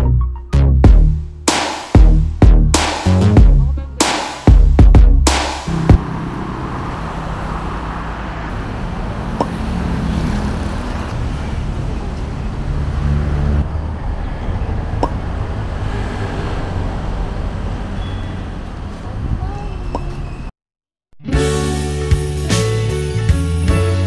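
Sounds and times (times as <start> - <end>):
electronic background music: 0.0 - 6.1.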